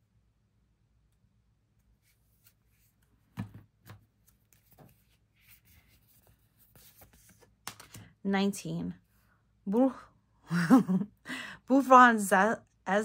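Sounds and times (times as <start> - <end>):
cards rustling: 2.0 - 8.1.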